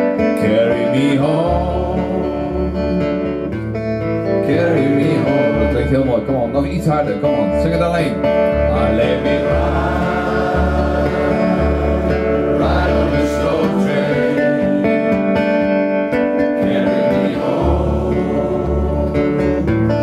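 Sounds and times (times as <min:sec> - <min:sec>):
acoustic guitar: 0:00.0 - 0:20.0
group singing a chorus: 0:00.7 - 0:02.8, 0:04.5 - 0:05.5, 0:08.7 - 0:15.6, 0:16.6 - 0:19.9.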